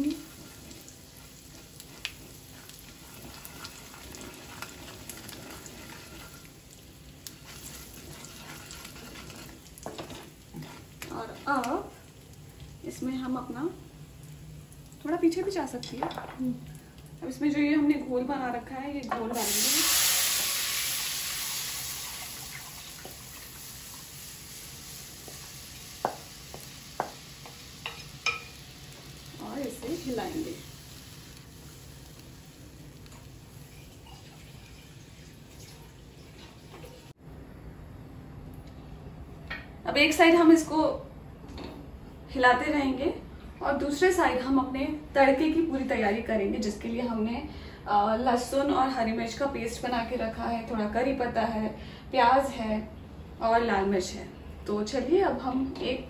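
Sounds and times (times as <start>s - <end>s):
fat sizzling in a pan: 0.0s - 37.2s.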